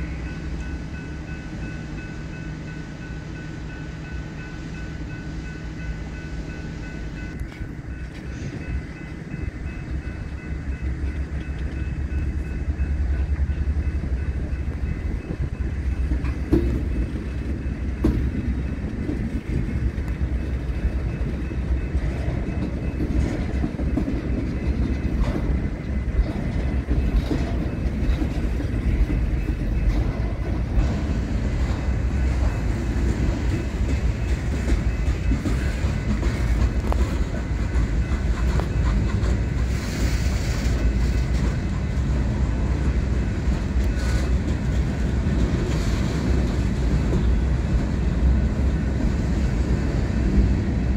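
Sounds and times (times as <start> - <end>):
train wheels rumbling on rail: 0.0 - 50.9.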